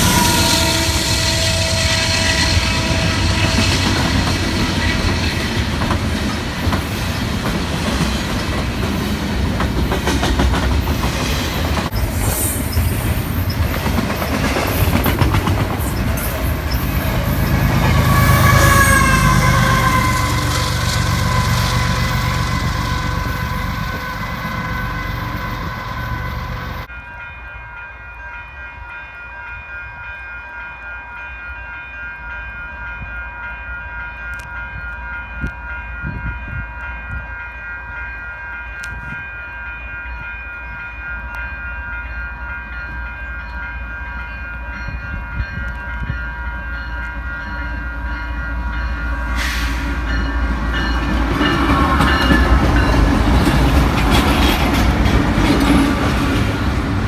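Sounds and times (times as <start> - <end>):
diesel locomotive rumble: 0.0 - 26.9, 44.6 - 57.0.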